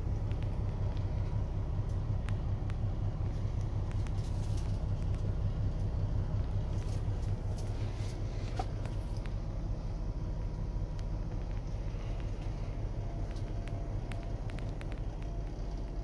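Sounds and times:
diesel truck engine idling: 0.0s - 16.0s
faint clicks: 10.4s - 16.0s.

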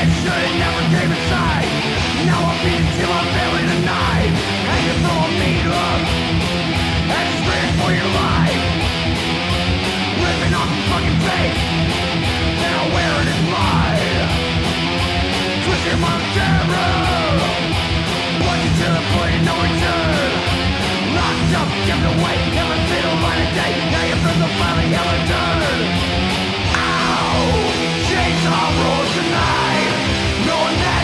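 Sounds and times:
bass guitar: 0.0s - 31.0s
distorted electric guitars: 0.0s - 31.0s
fast drums: 0.0s - 31.0s
thrash metal song: 0.0s - 31.0s.

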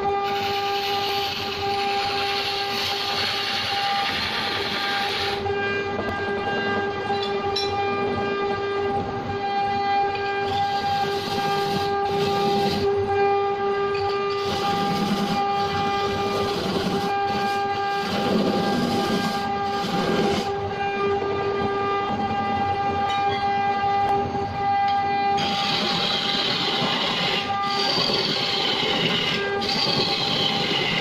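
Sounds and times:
wood lathe whine: 0.0s - 7.9s, 10.1s - 13.3s, 13.9s - 20.8s, 25.4s - 31.0s
chisel scraping spinning wood: 0.3s - 5.4s, 10.5s - 12.9s, 14.1s - 20.5s, 25.4s - 31.0s.

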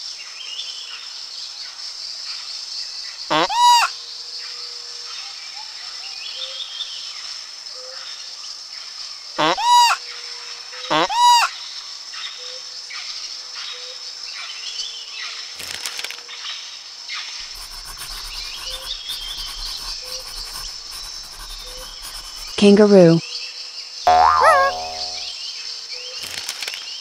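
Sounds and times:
insects hissing: 17.4s - 23.0s
pencil scratching on paper: 17.4s - 23.2s.

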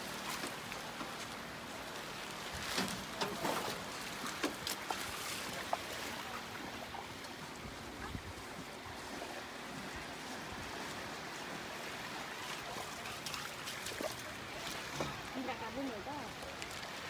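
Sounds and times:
light clicks and rustles of leaf: 0.0s - 6.4s, 12.4s - 17.0s.

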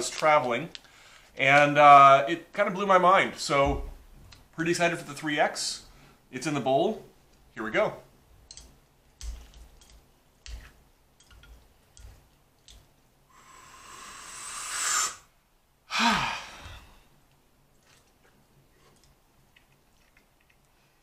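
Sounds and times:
chopsticks tapping ceramic bowl: 8.5s - 12.9s
person breathing in: 13.3s - 15.3s, 15.9s - 17.1s
sigh with falling hum: 13.3s - 15.3s, 15.9s - 17.1s.

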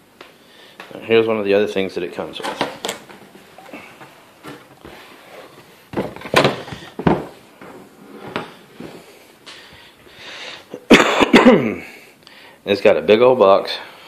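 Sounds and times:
cardboard scraping and bumping: 2.4s - 9.1s.

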